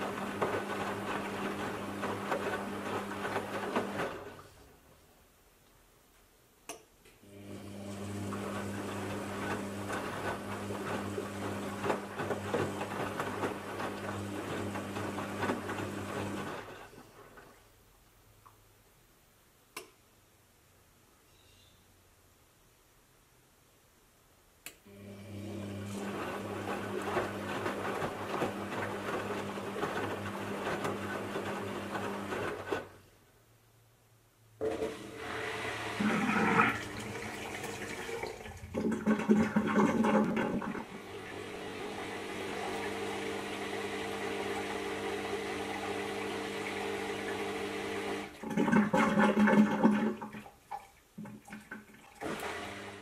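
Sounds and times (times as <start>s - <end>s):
drain pump humming: 7.3s - 16.6s, 24.9s - 32.4s, 34.6s - 50.6s, 51.2s - 53.0s
water gurgling and rushing: 35.6s - 52.7s.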